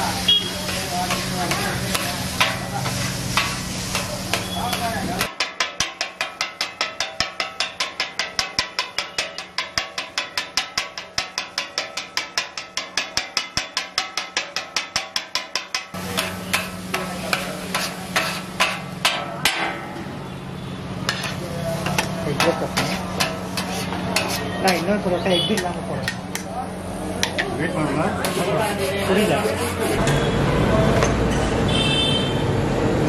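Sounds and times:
steel blades striking griddle: 0.4s - 20.0s, 21.0s - 26.6s
metal scraping: 0.6s - 20.0s, 21.0s - 26.4s, 27.2s - 30.3s.

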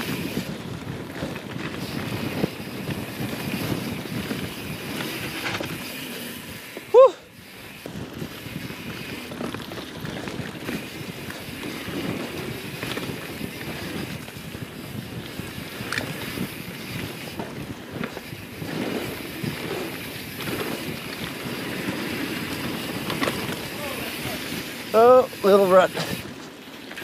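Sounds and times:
wind on microphone: 0.0s - 25.2s
bike rattling: 0.0s - 27.0s
bike tyres on dirt: 0.0s - 27.0s.

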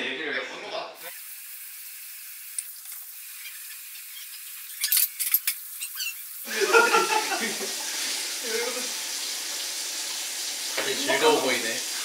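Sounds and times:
dishes clinking: 4.3s - 6.2s
tap water running into sink: 5.4s - 12.0s.

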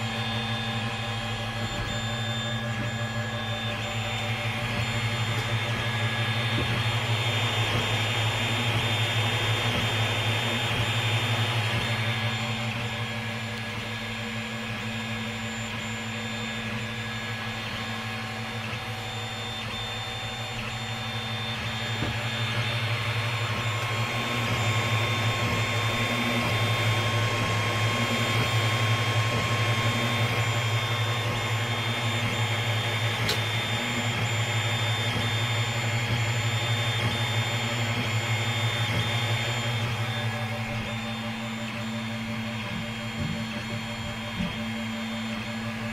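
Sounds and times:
cooling fans humming: 0.0s - 45.9s
stepper motors whirring: 0.0s - 45.9s.

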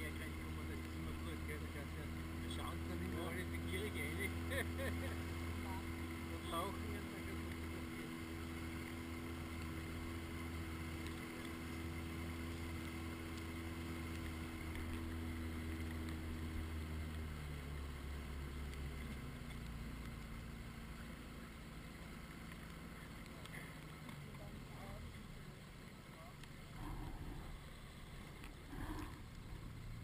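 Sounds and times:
outboard motor humming: 0.0s - 30.0s.

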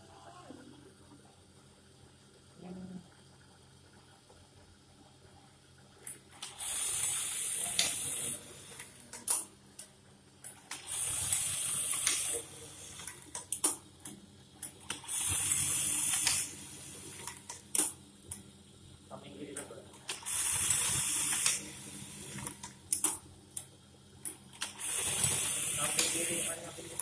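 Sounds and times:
sewing machine running: 10.6s - 13.3s, 14.8s - 17.5s, 20.0s - 22.7s, 24.5s - 27.0s.

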